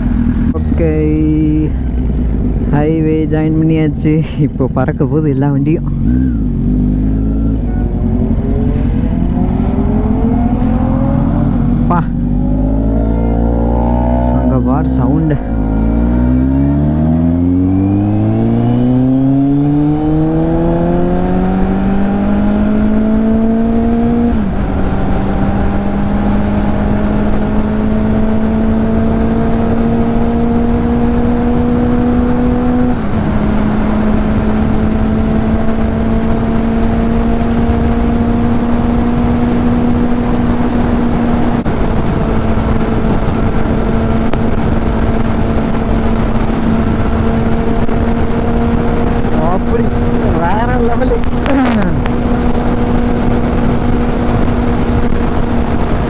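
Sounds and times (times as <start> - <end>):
motorcycle engine accelerating: 0.0 - 56.0
wind rushing over microphone: 0.0 - 56.0.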